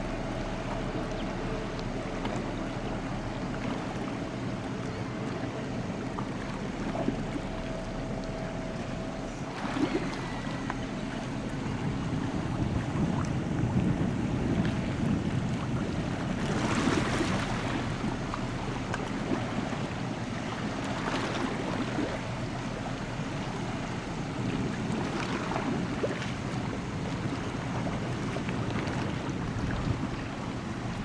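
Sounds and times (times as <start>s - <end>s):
ferry engine hum: 0.0s - 31.0s
wash of waves: 0.0s - 31.0s
wind on microphone: 0.0s - 31.0s.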